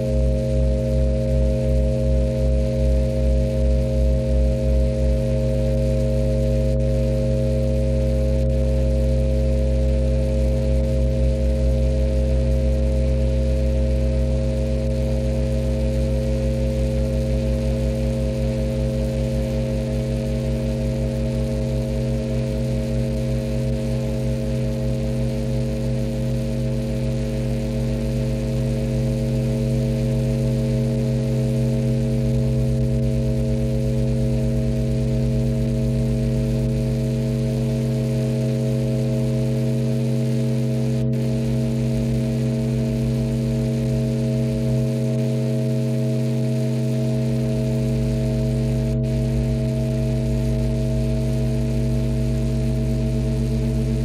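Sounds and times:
electric guitar drone: 0.0 - 54.0
low pulsing beating: 48.4 - 54.0.

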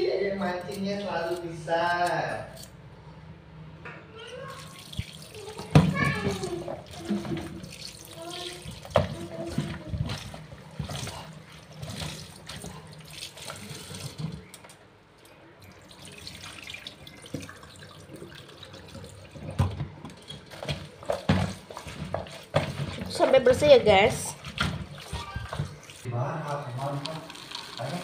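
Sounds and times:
tap water running into basin: 4.4 - 14.7, 15.6 - 28.0
water pouring into sink drain: 4.5 - 14.6, 15.6 - 28.0
hands swishing vegetables in water: 4.6 - 14.6, 16.0 - 28.0.

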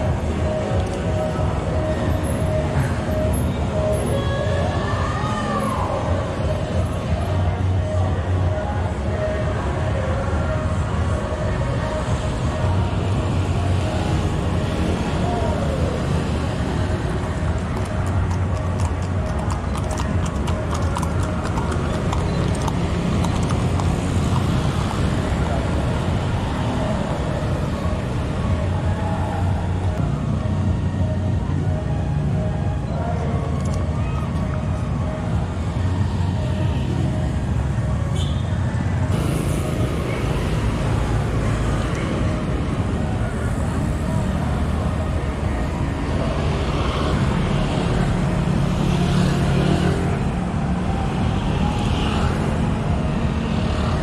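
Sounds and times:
road traffic rumble: 0.0 - 54.0
horse hooves clip-clopping on asphalt: 17.3 - 25.0.

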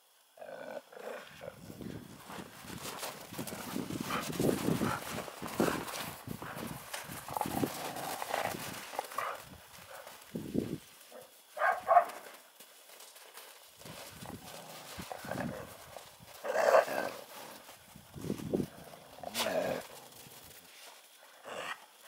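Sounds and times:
paws crunching in snow: 1.6 - 21.7
dog barking: 11.2 - 12.2.

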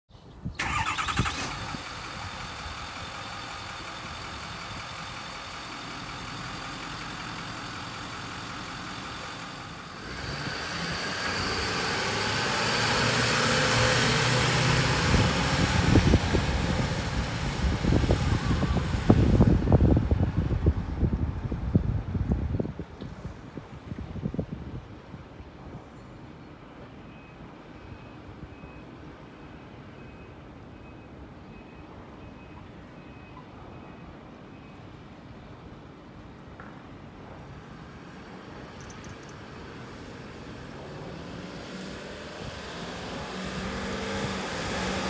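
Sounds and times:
diesel truck engine: 0.6 - 22.8, 37.4 - 45.0
wind buffeting microphone: 13.7 - 26.0.

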